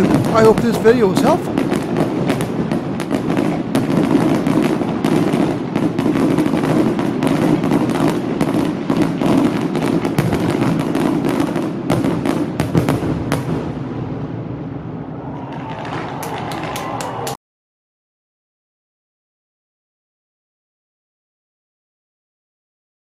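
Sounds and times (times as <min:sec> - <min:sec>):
fireworks crackles and bangs: 0:00.0 - 0:17.3.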